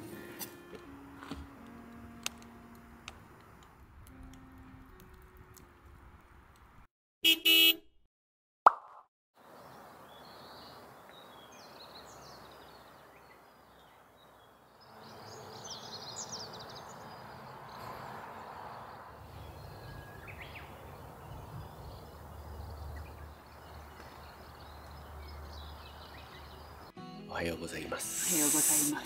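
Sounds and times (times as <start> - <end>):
birds chirping: 9.5 - 29.0.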